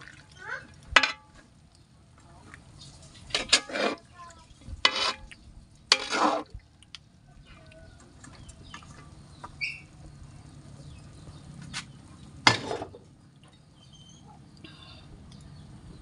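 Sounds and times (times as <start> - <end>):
metal spatula scraping a wok: 3.2 - 4.0, 4.8 - 6.6, 12.4 - 13.0.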